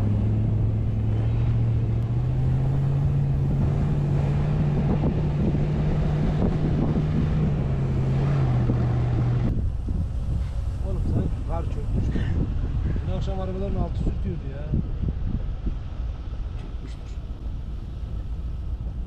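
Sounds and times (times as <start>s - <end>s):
engine pulling through snow: 0.0s - 14.8s
tyre snow and wind rush: 0.0s - 19.0s.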